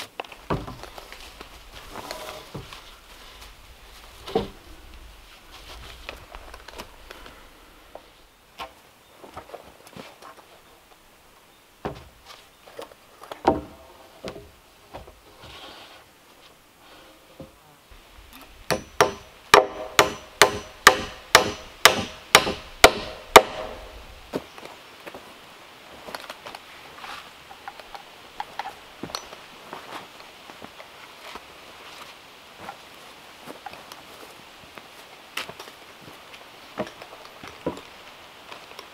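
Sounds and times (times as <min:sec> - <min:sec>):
hammer striking nail into wood: 0:18.7 - 0:23.9.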